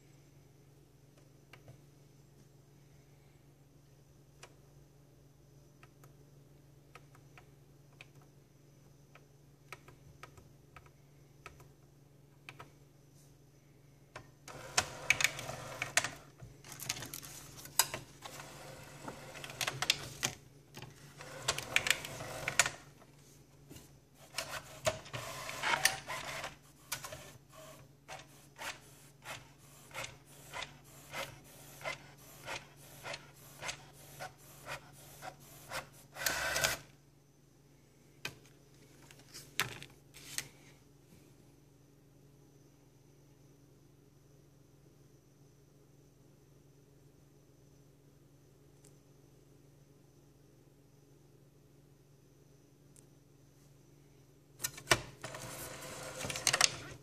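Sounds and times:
printer regular ticking: 14.2s - 16.3s, 21.0s - 22.9s, 24.2s - 36.8s
printer whirring and grinding: 14.5s - 16.3s, 18.2s - 20.3s, 21.0s - 22.9s, 24.2s - 36.9s, 54.9s - 57.0s.

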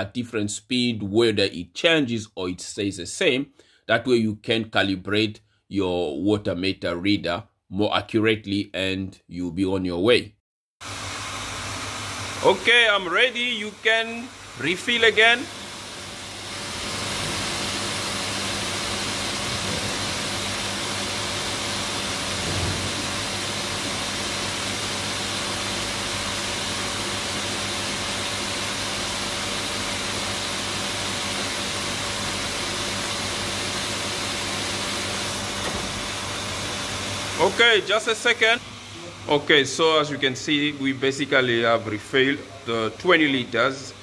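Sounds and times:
water rushing into bottle: 15.6s - 24.2s.

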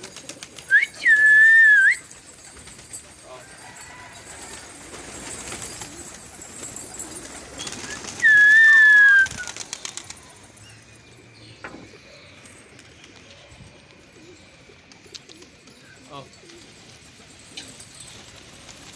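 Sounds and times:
pigeons flapping wings: 0.0s - 10.6s, 14.8s - 18.9s.

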